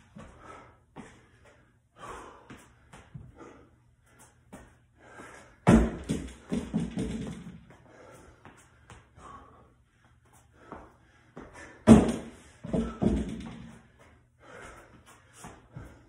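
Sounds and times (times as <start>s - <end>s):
feet thudding on concrete floor: 0.0s - 9.4s, 10.0s - 16.0s
feet thudding on wooden box: 5.6s - 7.7s, 11.4s - 13.8s.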